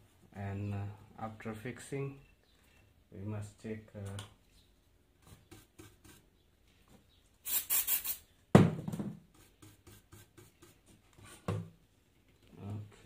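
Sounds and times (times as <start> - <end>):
aerosol spray hissing: 7.4 - 8.2
sudden knock: 8.6 - 9.2.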